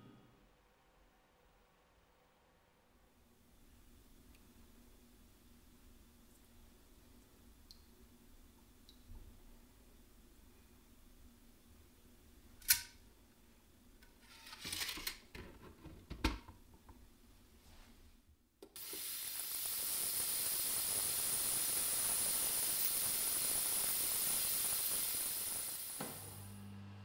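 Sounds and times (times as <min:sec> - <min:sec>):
ultrasonic cleaner hiss: 0:18.7 - 0:26.6.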